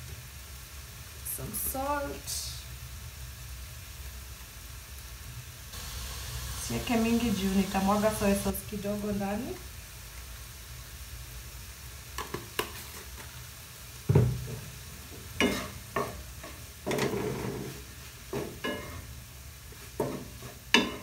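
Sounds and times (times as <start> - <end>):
faint sizzle: 0.0 - 21.0
spatula scraping frying pan: 15.3 - 21.0.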